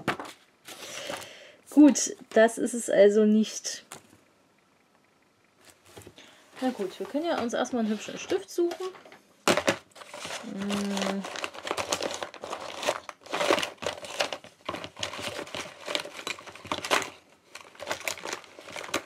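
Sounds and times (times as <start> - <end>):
hands rummaging through stationery: 5.9 - 19.0
person humming: 10.4 - 11.3.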